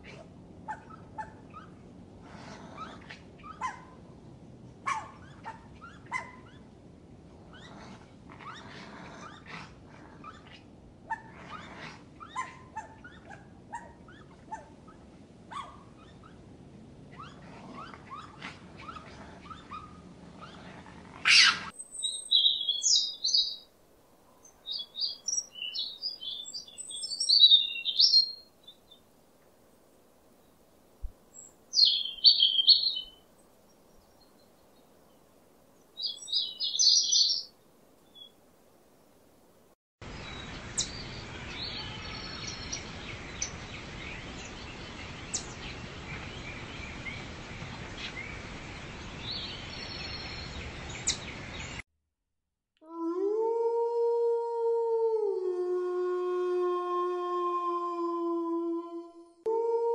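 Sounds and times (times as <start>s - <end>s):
steady background hiss: 19.8s - 51.8s
songbird chirping: 21.4s - 38.4s, 40.0s - 51.8s.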